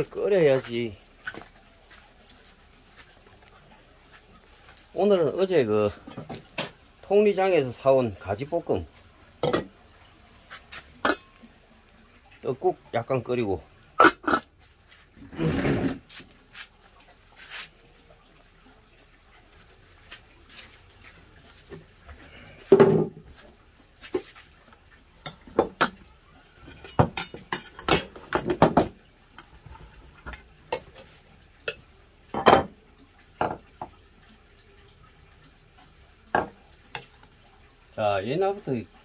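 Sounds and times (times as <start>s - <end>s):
pots knocked on wooden table: 9.4s - 9.7s, 22.7s - 23.2s, 25.4s - 26.0s, 26.9s - 29.0s, 32.3s - 32.8s, 33.4s - 34.0s, 36.3s - 36.6s.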